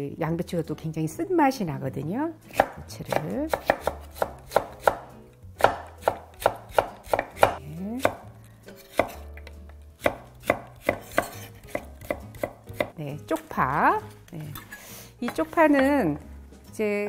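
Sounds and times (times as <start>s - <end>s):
knife chopping on wooden board: 2.5s - 13.0s.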